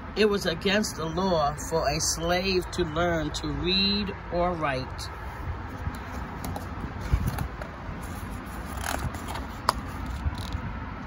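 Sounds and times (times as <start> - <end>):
paper page turning: 6.0 - 10.6.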